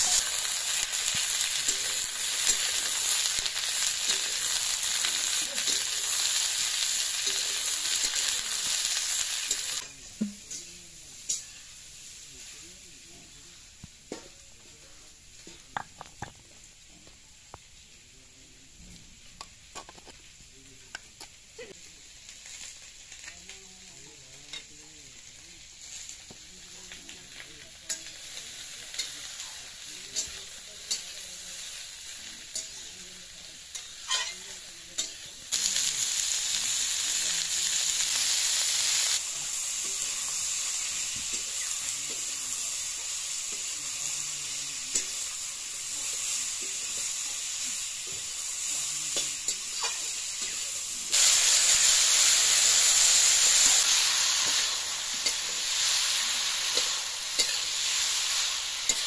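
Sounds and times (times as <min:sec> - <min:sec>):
vegetables sizzling in a wok: 0:00.0 - 0:59.0
metal spatula scraping and tapping: 0:33.7 - 0:34.4.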